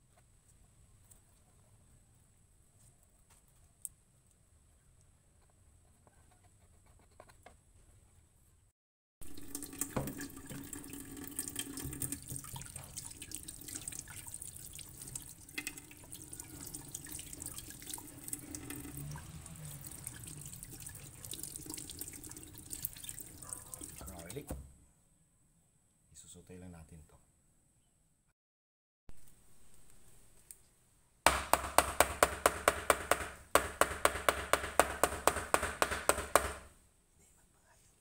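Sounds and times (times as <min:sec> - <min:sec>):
tap water splashing in a sink: 0:09.2 - 0:24.6.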